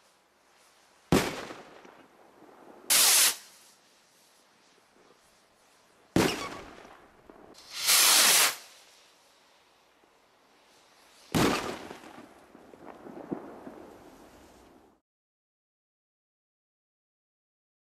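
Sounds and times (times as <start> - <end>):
firework rocket hiss: 0.0 - 14.8
firework bangs: 1.1 - 3.8, 6.1 - 9.0, 11.0 - 14.4.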